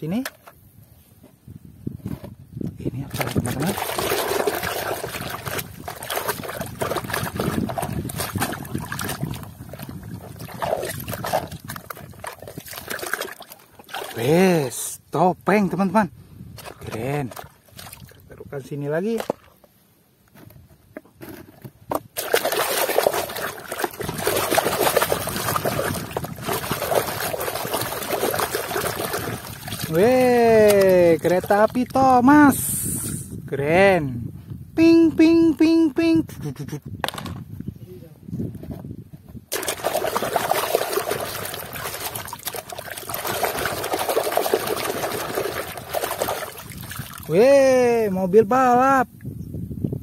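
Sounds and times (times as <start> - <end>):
water splashing in basin: 3.0 - 14.4, 16.6 - 18.2, 19.1 - 19.6, 22.1 - 32.0, 39.5 - 47.4.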